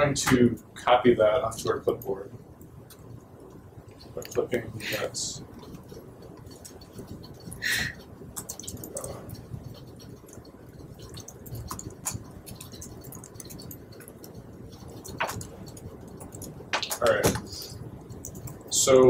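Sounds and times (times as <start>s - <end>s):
low room hum: 0.0s - 19.0s
laptop keyboard and mouse clicks: 8.3s - 18.6s.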